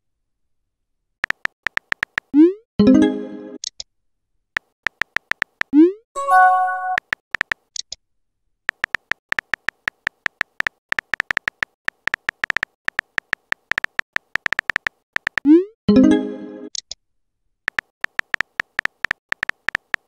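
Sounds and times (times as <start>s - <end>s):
on-screen keyboard clicks: 1.2s - 2.4s, 4.6s - 8.0s, 8.7s - 15.6s, 17.7s - 20.0s
short chime: 6.2s - 7.0s.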